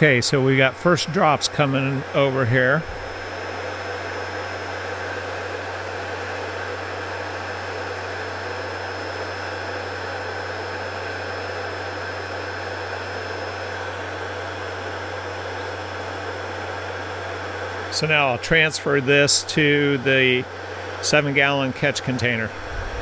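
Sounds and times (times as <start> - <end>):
centrifuge hum and whirring: 0.0 - 23.0.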